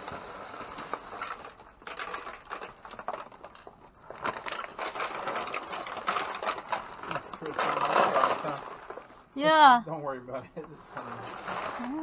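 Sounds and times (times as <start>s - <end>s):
trash rustling and crinkling: 0.0s - 9.5s, 10.2s - 12.0s.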